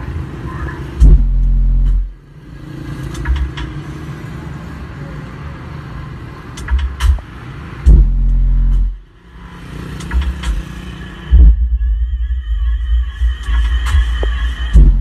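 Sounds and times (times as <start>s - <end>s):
deep subwoofer bass: 1.0s - 2.2s, 7.9s - 9.1s, 11.3s - 15.0s.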